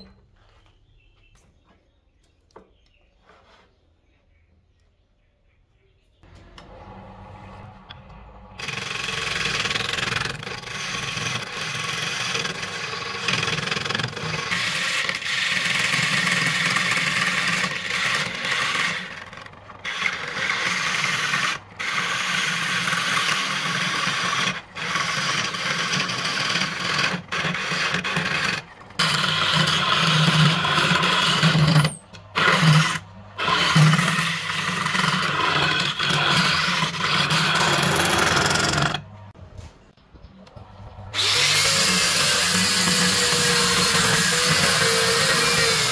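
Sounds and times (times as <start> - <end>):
lathe motor hum: 6.2 - 39.4, 40.5 - 45.9
turning tool rasping on wood: 8.5 - 39.0, 41.2 - 45.9.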